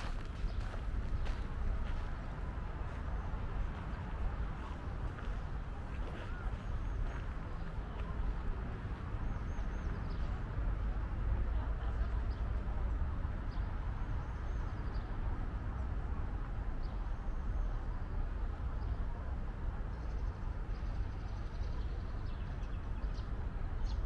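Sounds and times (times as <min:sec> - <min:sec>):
small birds chirping: 0:00.0 - 0:02.2.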